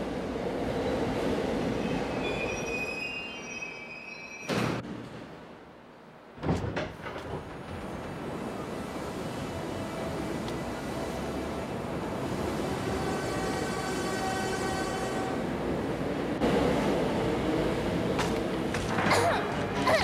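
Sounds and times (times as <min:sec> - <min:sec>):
subway train braking: 0:00.0 - 0:06.3, 0:07.1 - 0:18.7
high brake squeal: 0:01.8 - 0:04.8
train humming: 0:07.2 - 0:20.0.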